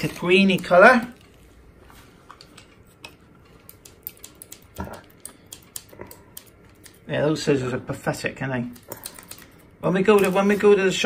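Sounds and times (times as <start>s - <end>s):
scissors snipping plastic: 3.6s - 7.1s, 8.6s - 10.7s.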